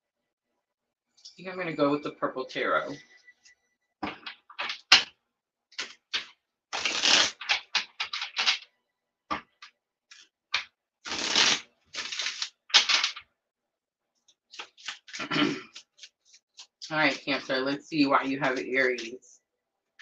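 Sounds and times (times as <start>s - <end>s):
cards being shuffled: 4.0s - 5.1s, 5.8s - 8.6s, 9.3s - 13.2s, 14.3s - 17.3s, 18.5s - 19.1s.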